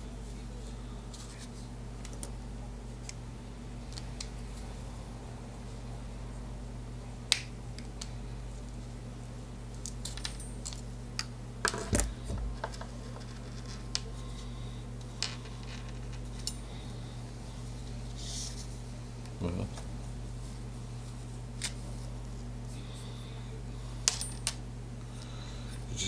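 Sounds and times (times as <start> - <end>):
steady low hum: 0.0 - 26.0
pliers set down on desk: 11.7 - 12.9.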